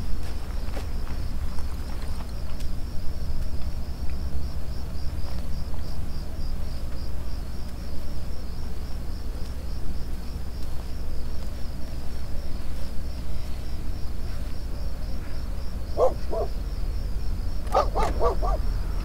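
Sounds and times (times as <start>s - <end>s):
crickets chirping: 0.0s - 19.0s
low steady drone: 0.0s - 19.0s.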